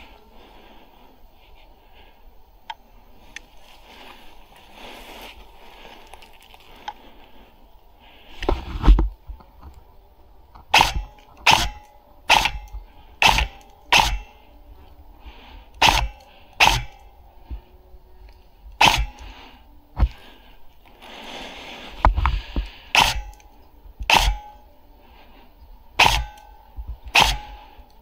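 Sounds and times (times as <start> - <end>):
hard fast breathing: 0.0 - 9.0, 10.8 - 28.0
airsoft rifle shots: 10.7 - 14.4, 15.8 - 17.1, 18.8 - 19.3, 22.9 - 24.6, 26.0 - 27.8.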